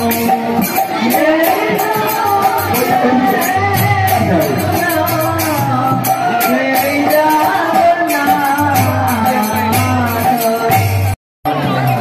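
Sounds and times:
devotional singing: 0:00.0 - 0:10.9
quick percussion beat: 0:00.0 - 0:12.0.

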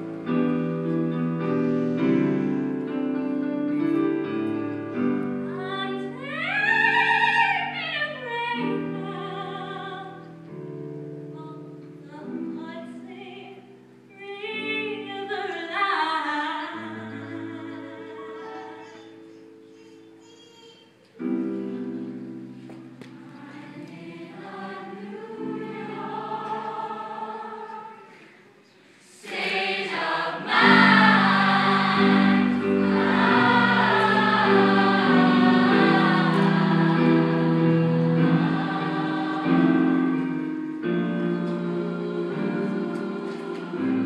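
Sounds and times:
choir singing held chords: 0:23.1 - 0:44.0.

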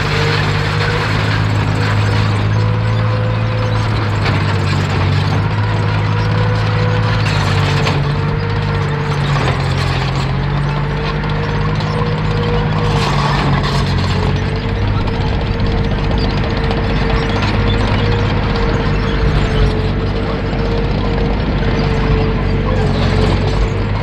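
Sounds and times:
tank engine running: 0:00.0 - 0:24.0
wavering whine: 0:05.7 - 0:24.0.

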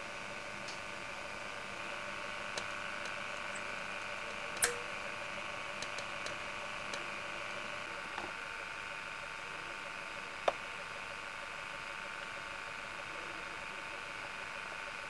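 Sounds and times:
camcorder hiss and hum: 0:00.0 - 0:15.0
clicks: 0:02.5 - 0:04.9.

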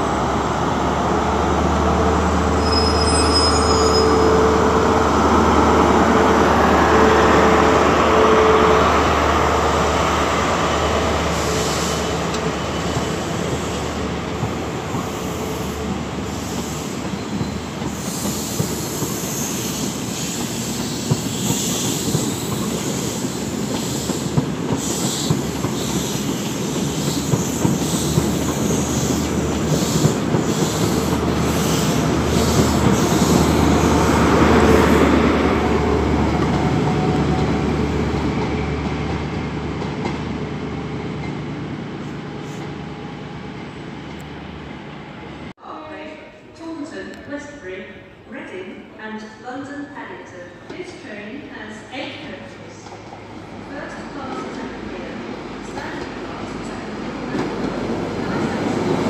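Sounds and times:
train rumble: 0:00.0 - 0:45.5.

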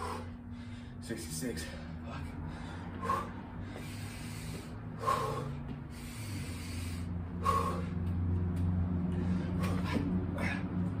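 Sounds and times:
man breathing hard: 0:00.0 - 0:11.0.

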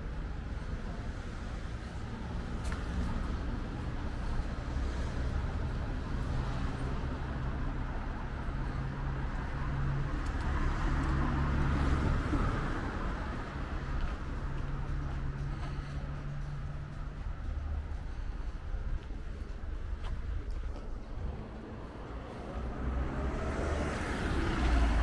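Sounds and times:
city traffic noise: 0:00.0 - 0:25.0.

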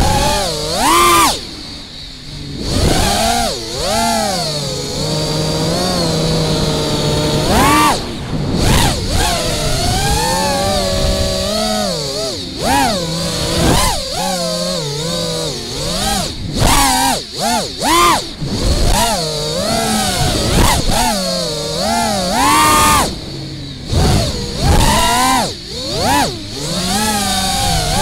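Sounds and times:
quadcopter motors whining: 0:00.0 - 0:28.0.

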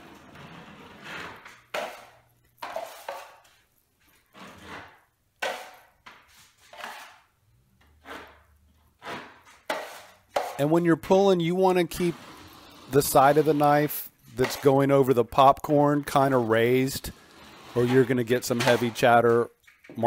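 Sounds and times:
drywall knife scraping ceiling: 0:00.0 - 0:15.0, 0:16.1 - 0:19.5.

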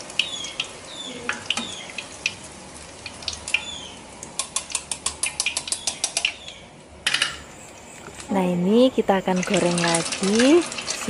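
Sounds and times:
oil sizzling in a wok: 0:00.0 - 0:06.4, 0:09.1 - 0:11.0
oil popping and crackling: 0:00.0 - 0:07.3, 0:09.2 - 0:11.0.

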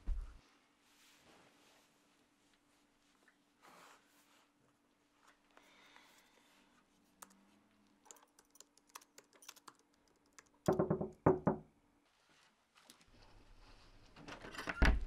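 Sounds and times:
laptop keyboard typing: 0:08.1 - 0:10.8.

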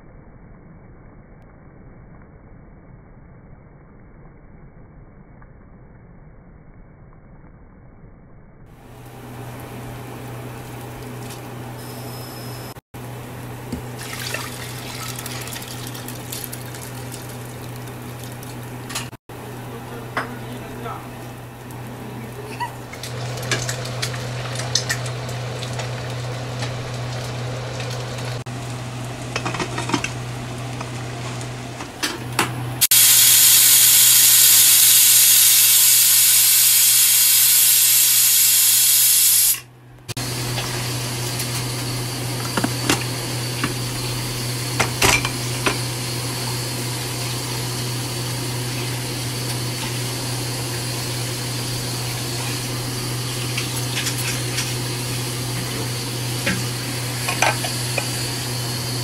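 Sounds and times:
rice boiling in pot: 0:08.8 - 0:38.2, 0:40.2 - 0:59.0
pressure cooker steam hiss: 0:32.8 - 0:39.6.

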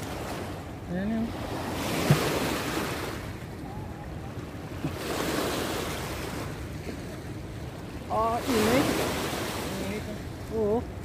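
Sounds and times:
river current running fast: 0:07.9 - 0:11.0.

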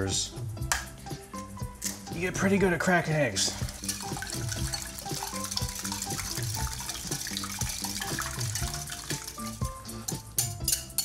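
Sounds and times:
background music: 0:00.0 - 0:11.0
whisk beating eggs in glass bowl: 0:03.6 - 0:10.1.

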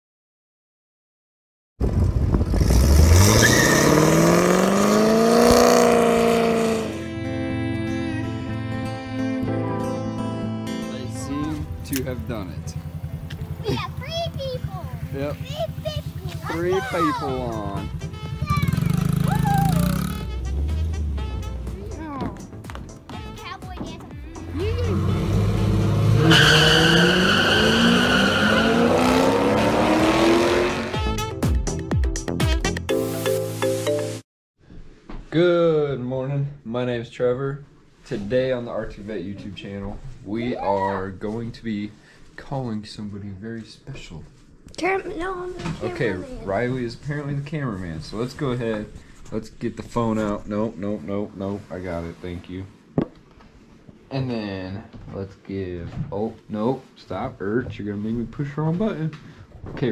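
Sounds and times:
car engine accelerating hard: 0:02.2 - 0:07.0, 0:18.7 - 0:21.5, 0:24.4 - 0:31.0
tyre squeal: 0:03.2 - 0:04.1, 0:26.1 - 0:29.3.

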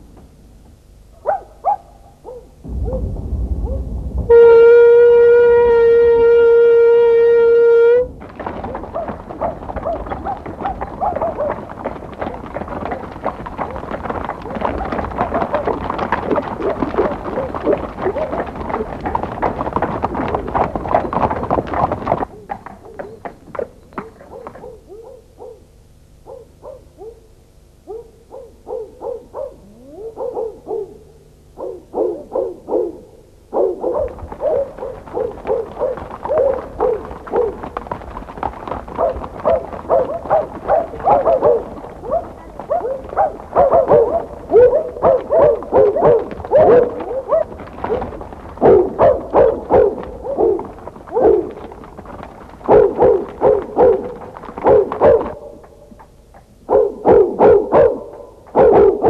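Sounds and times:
low rumble: 0:02.5 - 0:13.0
steam train whistle: 0:04.3 - 0:08.1.

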